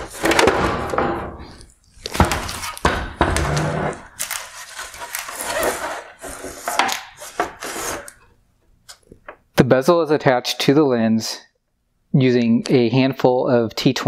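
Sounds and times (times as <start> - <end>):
hard plastic rustling and scraping: 0.0 - 9.2.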